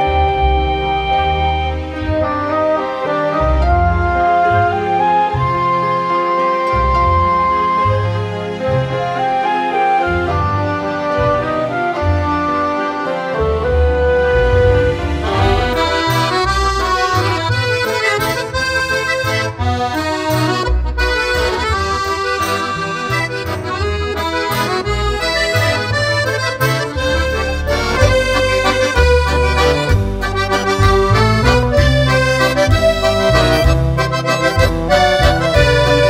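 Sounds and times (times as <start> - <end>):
bass line: 0.0 - 8.9, 13.3 - 36.0
melody: 13.2 - 36.0.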